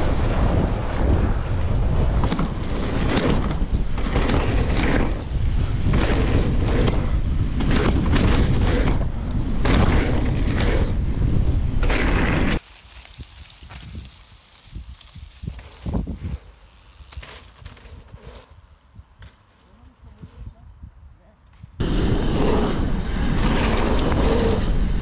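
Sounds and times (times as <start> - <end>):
bike rumbling and rattling: 0.0 - 25.0
wind on microphone: 0.0 - 25.0.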